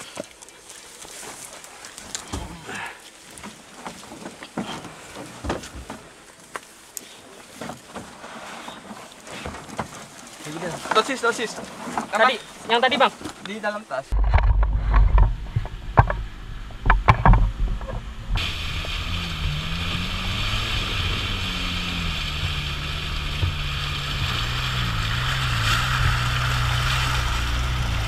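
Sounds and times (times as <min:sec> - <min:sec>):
engine running under load: 0:14.6 - 0:28.0.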